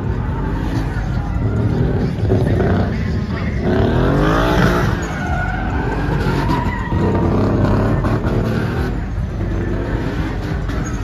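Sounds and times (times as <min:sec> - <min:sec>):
truck engine revving: 0:00.0 - 0:11.0
tyres squealing: 0:00.2 - 0:09.0.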